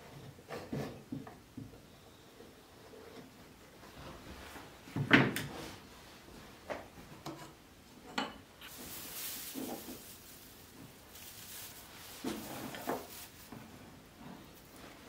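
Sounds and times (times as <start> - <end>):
plastic sheet crinkling: 8.6 - 13.7.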